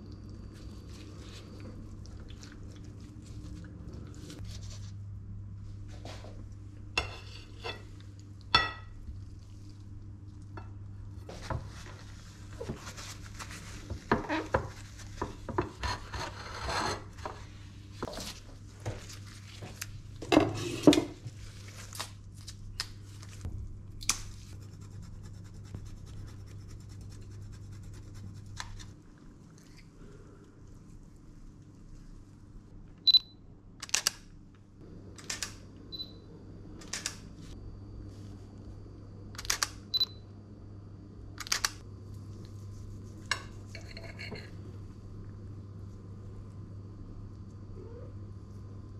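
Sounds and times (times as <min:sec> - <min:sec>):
steady low hum: 0:00.0 - 0:48.9.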